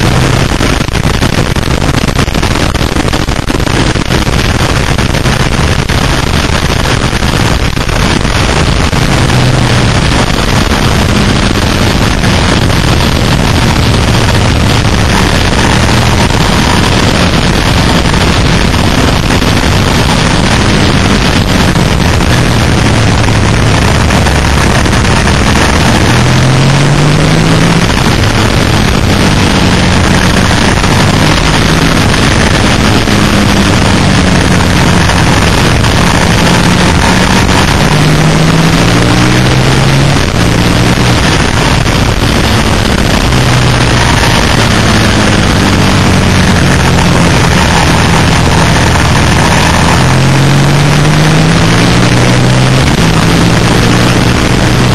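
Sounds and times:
motorcycle engine running hard: 0.0 - 54.9
wind rush: 0.0 - 54.9.

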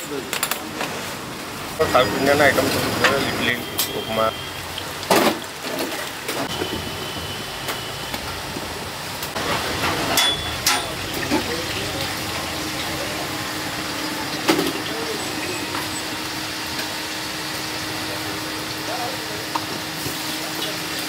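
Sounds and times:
metal plates and pots clinking: 9.5 - 11.7.

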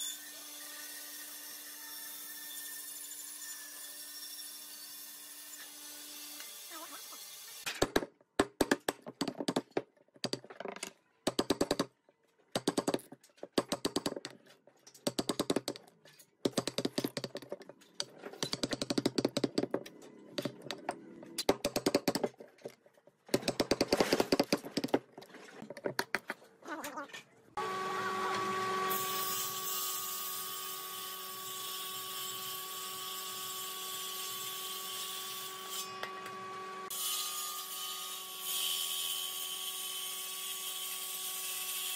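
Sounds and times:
jointer-planer planing a board: 27.6 - 29.0.

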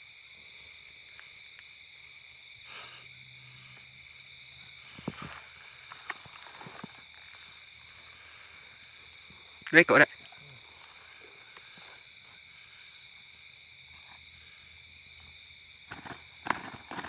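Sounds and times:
night insects chorus: 0.0 - 17.0
vegetation rustling: 4.6 - 9.6.

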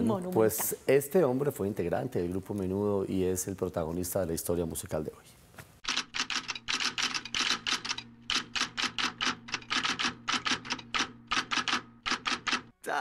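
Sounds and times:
typewriter keys clacking: 5.8 - 12.7.

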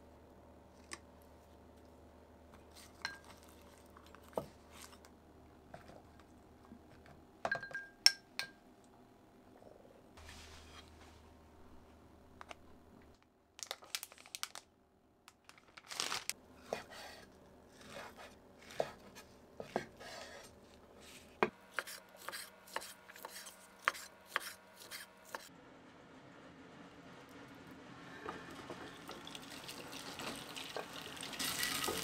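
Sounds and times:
knife chopping on cutting board: 17.8 - 20.3.

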